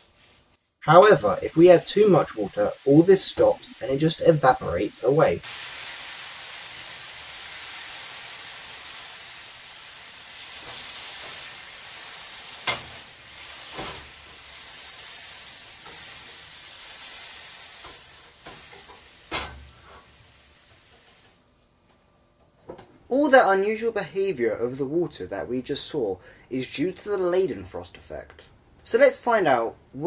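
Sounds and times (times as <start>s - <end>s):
water sizzling in hot pan: 0.0s - 21.4s.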